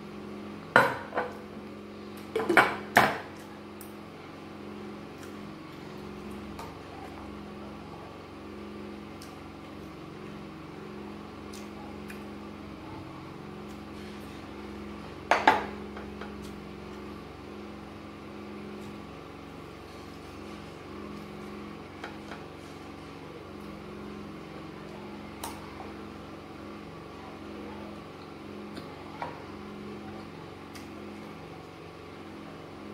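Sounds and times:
steady low hum: 0.0 - 32.9.

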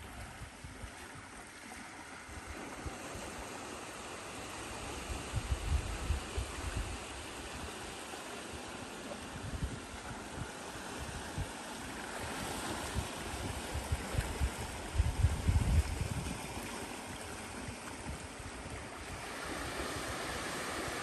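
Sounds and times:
small waves washing on rocky shore: 0.0 - 21.0
wind buffeting microphone: 5.0 - 7.7, 9.3 - 11.6, 12.2 - 16.7.

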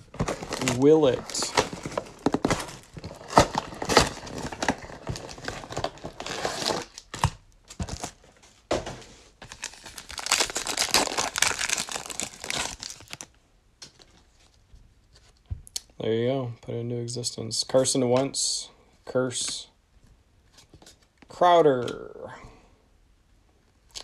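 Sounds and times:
foil packs crinkling and tearing: 0.0 - 8.2, 9.4 - 13.3
shrink wrap crinkling and tearing: 0.0 - 8.2, 9.4 - 13.4.

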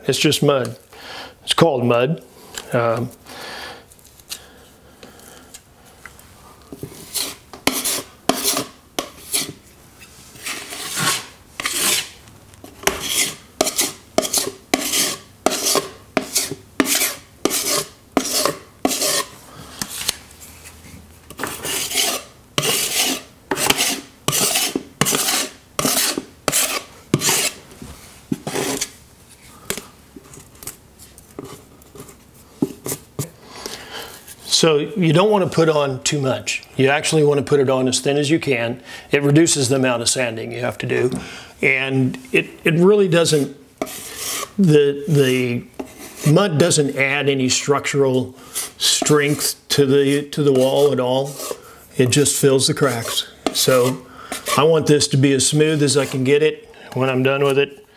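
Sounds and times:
putty knife scraping drywall: 6.8 - 12.2, 12.8 - 20.2, 21.3 - 27.6, 28.3 - 29.0, 43.1 - 56.4.

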